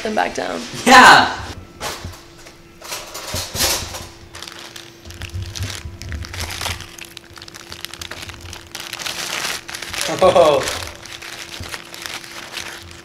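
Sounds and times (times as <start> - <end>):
plastic bag crinkling: 4.3 - 13.0
icy slush crackling: 6.3 - 13.0.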